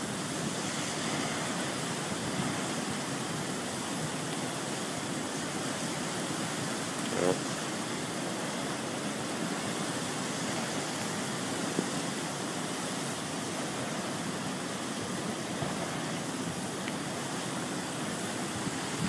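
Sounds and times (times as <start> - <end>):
floodwater rushing: 0.0 - 19.0.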